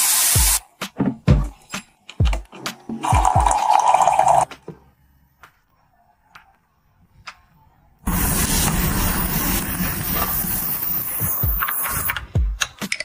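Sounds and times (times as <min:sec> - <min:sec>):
hot water pouring into mug: 0:03.0 - 0:04.5.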